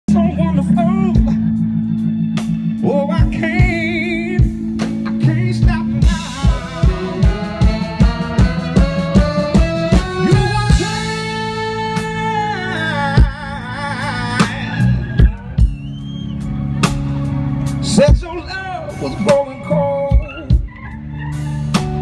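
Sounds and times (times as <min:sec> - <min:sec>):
live soul band playing: 0:00.1 - 0:22.0
horn section chord: 0:06.0 - 0:13.0.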